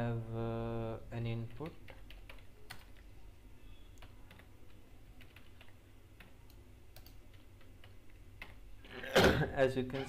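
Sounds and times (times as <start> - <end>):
keyboard typing clicks: 5.2 - 8.6.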